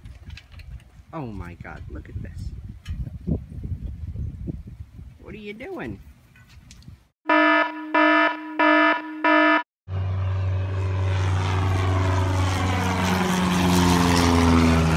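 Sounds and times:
short beeps: 7.3 - 9.6
propeller airplane flying overhead: 9.9 - 14.9.

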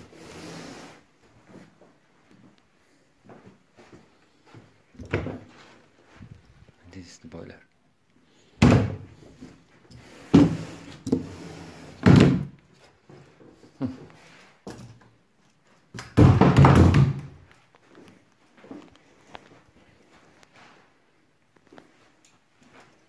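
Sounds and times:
cupboard doors thudding shut: 8.6 - 9.1.

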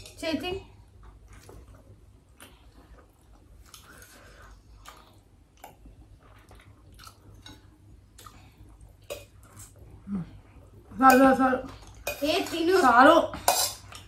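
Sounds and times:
people chewing and smacking: 0.9 - 10.6.

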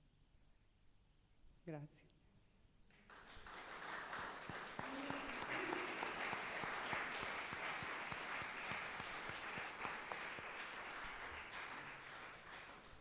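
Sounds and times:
audience applauding: 2.9 - 13.0.

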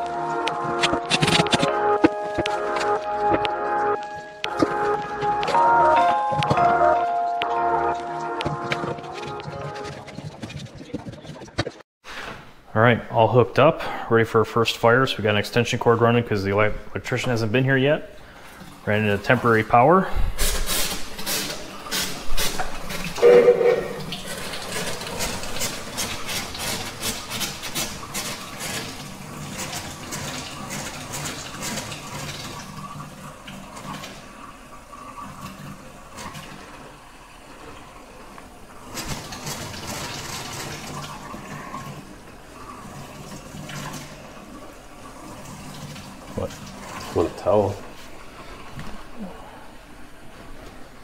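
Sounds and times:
water running and splashing: 20.4 - 51.0
short tone: 23.2 - 24.2.

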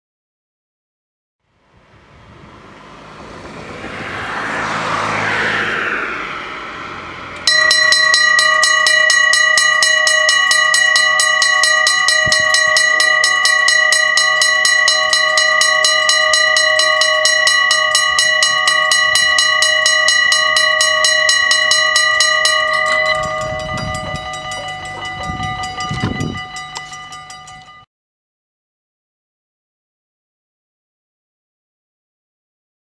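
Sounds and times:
rushing noise: 1.7 - 26.7
level-crossing bell ringing: 7.4 - 27.9.

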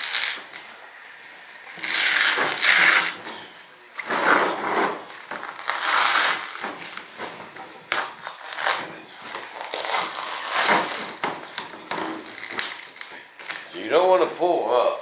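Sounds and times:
plastic sheet crinkling and rustling: 7.9 - 11.3.

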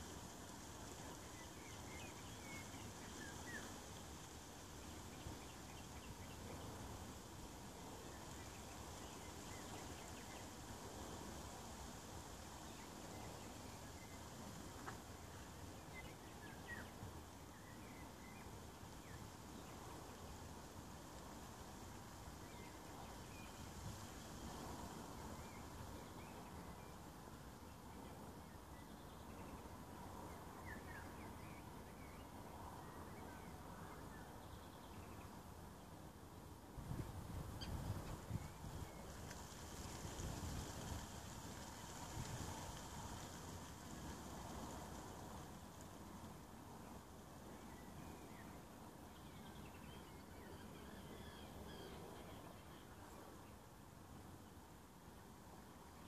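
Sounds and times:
faint outdoor background noise: 0.0 - 56.0
faint bird chirps: 1.0 - 3.9, 15.7 - 20.4, 46.8 - 53.7.

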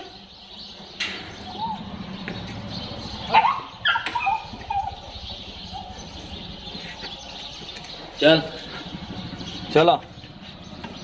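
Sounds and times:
dog barking and yipping: 3.2 - 5.1.

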